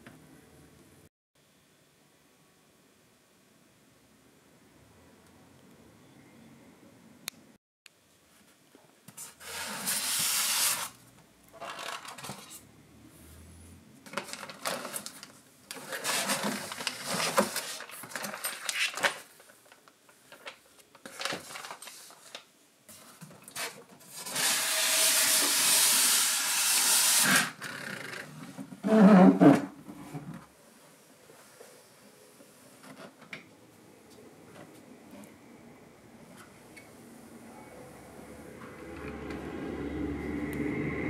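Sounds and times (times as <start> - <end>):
packaging rustling and scraping: 11.6 - 12.6, 14.1 - 24.6.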